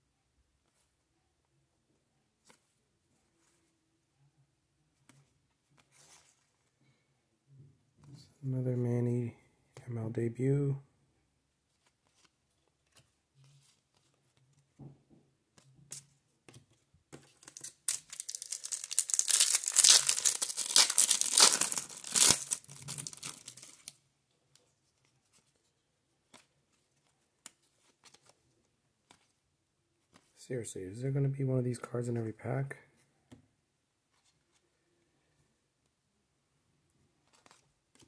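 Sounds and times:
cards clicking and rustling: 15.5s - 23.9s, 37.2s - 38.0s
foil wrapper tearing and crackling: 17.6s - 23.9s.

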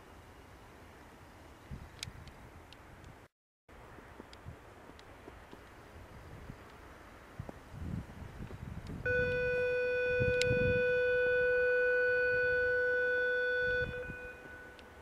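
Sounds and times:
steady horn-like tone: 9.1s - 15.0s.

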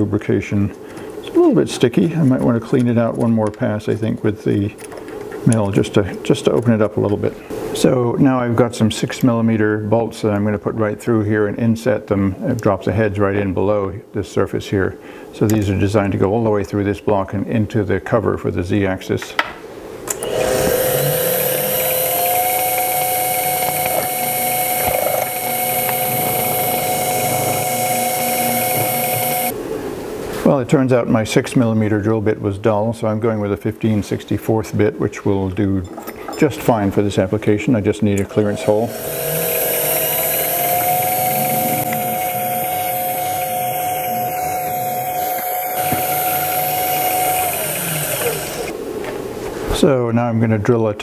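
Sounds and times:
mill motor drilling metal: 20.1s - 29.5s, 38.2s - 48.7s.

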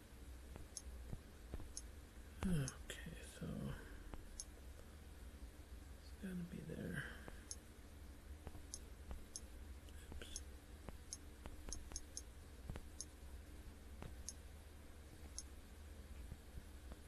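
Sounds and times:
faint low hum: 0.0s - 17.0s
touchscreen tapping clicks: 10.2s - 13.1s.

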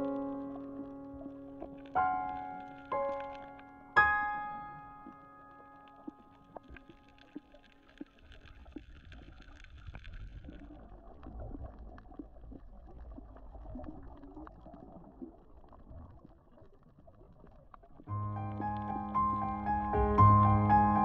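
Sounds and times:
small crackling clicks: 0.0s - 18.1s
underwater gurgling wash: 6.0s - 18.1s.

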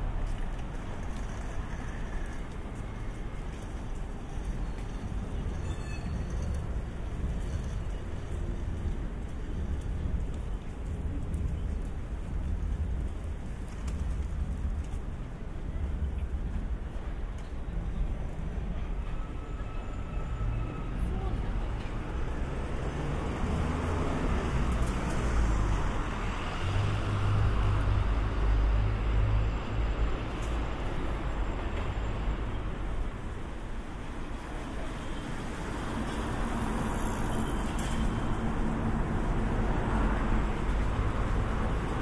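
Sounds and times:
road traffic rumble: 0.0s - 42.0s
passing vehicle engines: 20.0s - 42.0s.

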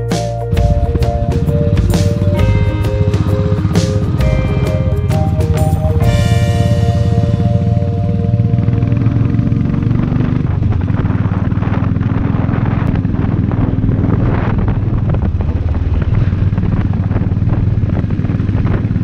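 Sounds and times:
background music: 0.0s - 10.5s
motorcycle engine running: 0.0s - 19.0s
wind and road noise: 0.0s - 19.0s.

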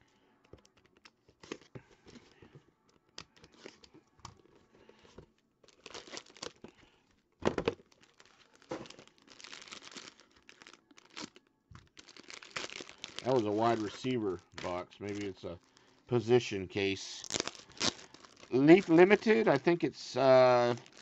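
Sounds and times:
shrink wrap crinkling and tearing: 5.6s - 7.0s, 7.8s - 21.0s.

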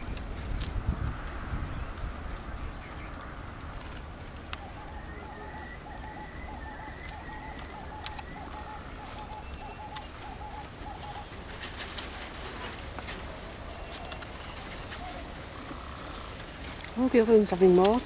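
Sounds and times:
wind on microphone: 0.0s - 18.0s
thin wavering bird call: 4.6s - 11.4s.

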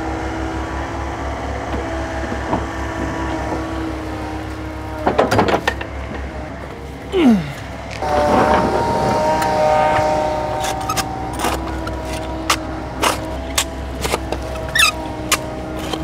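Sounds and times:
diesel engine idling: 0.0s - 16.0s
clatter of knocks: 5.0s - 6.3s.

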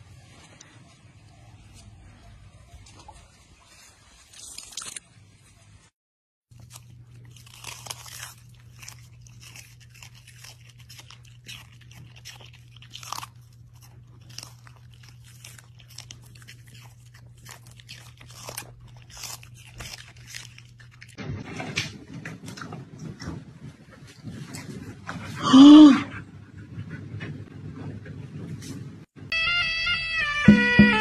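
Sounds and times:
dogs crunching celery: 3.9s - 5.0s, 6.5s - 25.4s.

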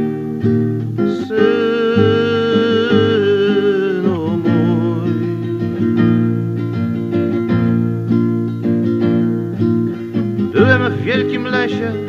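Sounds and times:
acoustic guitar chords: 0.0s - 12.0s.

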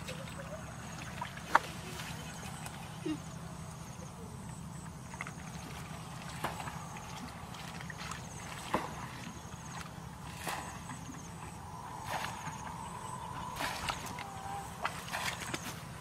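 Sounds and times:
steady low hum: 0.0s - 16.0s
hands splashing in muddy water: 13.5s - 15.9s.

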